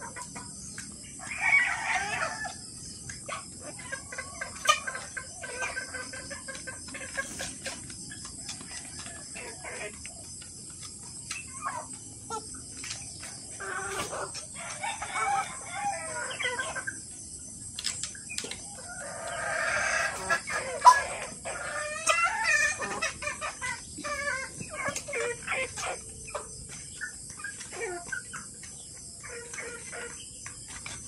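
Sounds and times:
hens clucking: 0.0 - 31.0
roosters crowing: 1.2 - 2.9, 13.4 - 17.0, 18.7 - 26.9.

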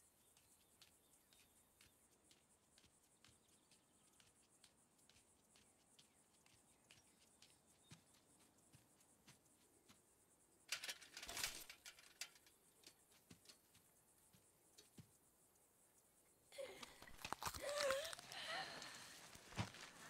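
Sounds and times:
faint ticks: 0.2 - 20.0
bicycle lifted off grass: 10.7 - 12.6.

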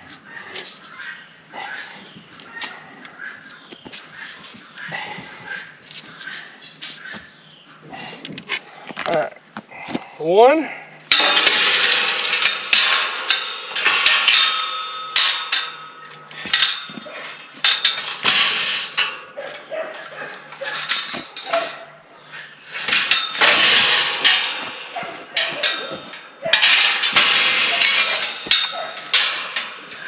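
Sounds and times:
metal gate clanking and rattling: 11.1 - 30.0.

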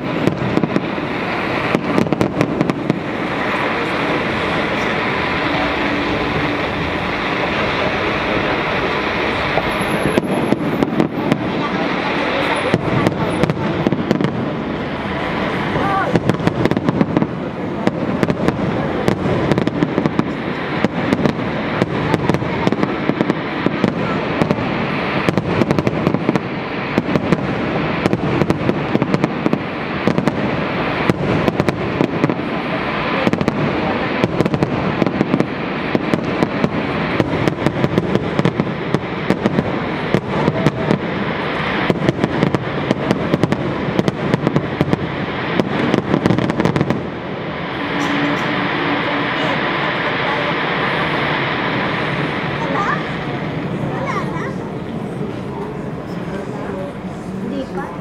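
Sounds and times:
fireworks bangs and crackling: 0.0 - 58.0
steady rumble: 0.0 - 58.0.

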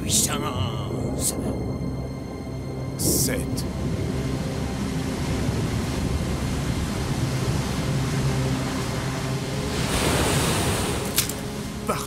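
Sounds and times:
low droning tone: 0.0 - 9.9
low rumble of storm and water: 0.0 - 12.0.

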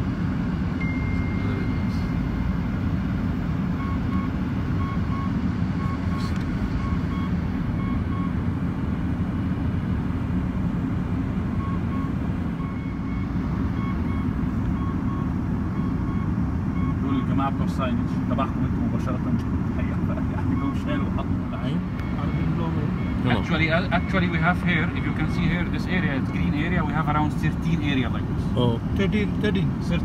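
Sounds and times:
low vehicle rumble: 0.0 - 30.0
faint electronic beeping: 0.8 - 2.4.

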